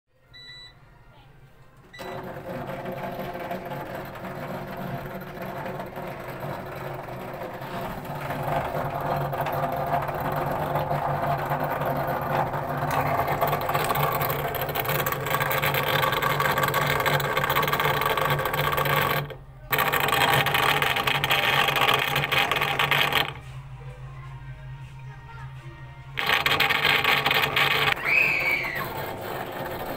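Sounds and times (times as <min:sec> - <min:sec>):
control panel beep: 0:00.4 - 0:00.8
drain pump harsh noise: 0:02.0 - 0:23.5, 0:26.2 - 0:29.9.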